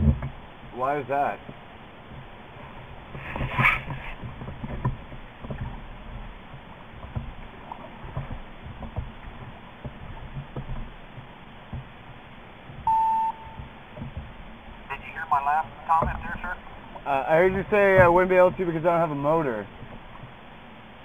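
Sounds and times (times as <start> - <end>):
boat bump: 0.0 - 21.0
water slapping against boat hull: 1.4 - 20.7
short intercom beep: 12.9 - 13.6.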